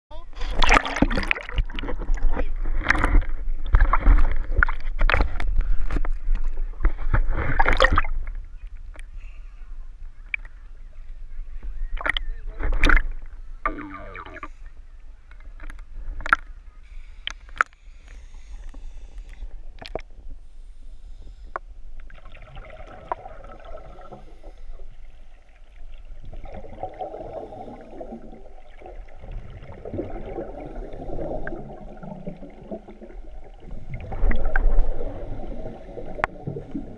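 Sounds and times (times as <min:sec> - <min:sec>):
water sloshing and splashing: 0:00.3 - 0:09.0, 0:12.0 - 0:14.5, 0:22.0 - 0:36.9
underwater clicks and knocks: 0:00.6 - 0:09.1, 0:12.0 - 0:14.5, 0:15.3 - 0:16.5, 0:19.3 - 0:20.1
regulator exhale bubbling: 0:26.4 - 0:36.9.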